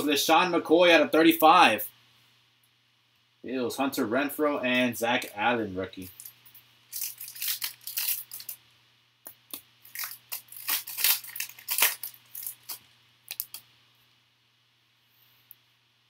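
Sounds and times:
foil wrapper tearing and crinkling: 6.9 - 8.6, 9.8 - 13.6.

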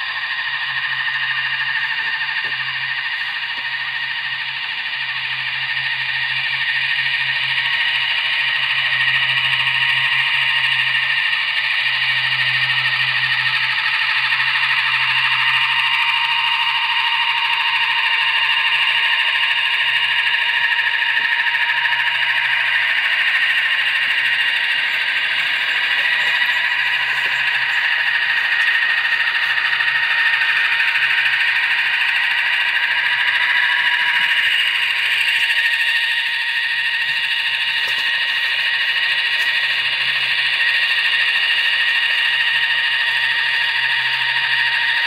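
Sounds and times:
rotor hum: 0.0 - 45.0
toy helicopter motor whine: 0.0 - 45.0.

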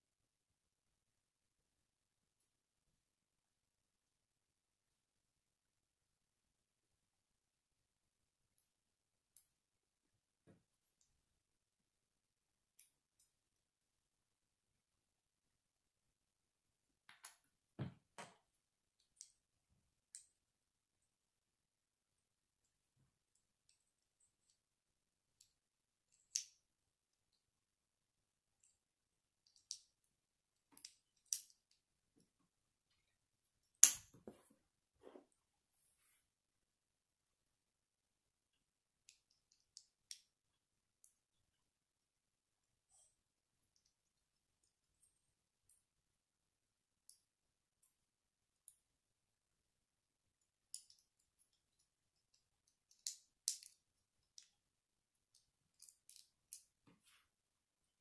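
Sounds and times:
plastic bricks clicking together: 52.8 - 54.5.

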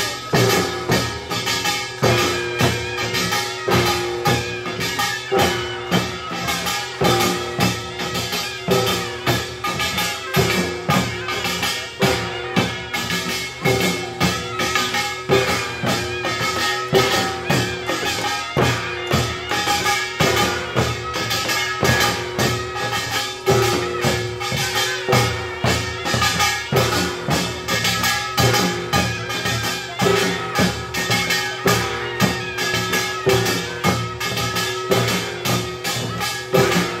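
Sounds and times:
drums in fast rhythm: 0.0 - 37.0.

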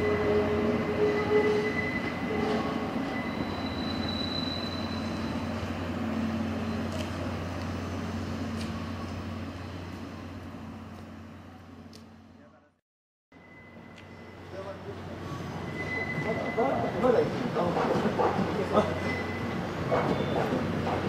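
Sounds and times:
wheel squeal: 1.0 - 5.6, 15.2 - 16.9, 18.8 - 20.6
train wheels rumbling on rails: 14.0 - 21.0.

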